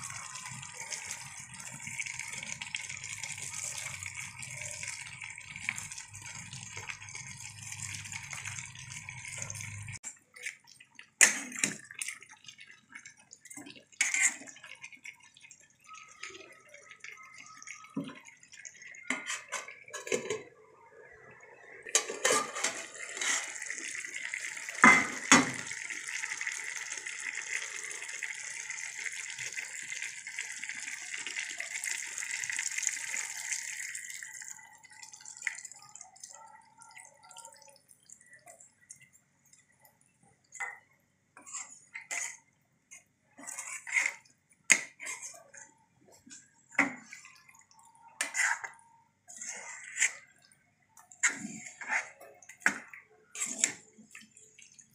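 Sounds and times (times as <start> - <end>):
metal spoon stirring in pan: 0.0 - 16.2, 21.9 - 27.4, 40.4 - 54.8
water pouring: 0.0 - 54.9
curry sizzling in a pan: 22.0 - 35.7.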